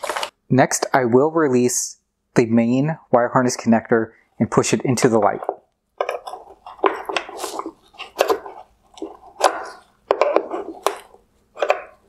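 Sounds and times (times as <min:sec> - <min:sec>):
screwdriver prying plastic connector: 0:08.1 - 0:12.0.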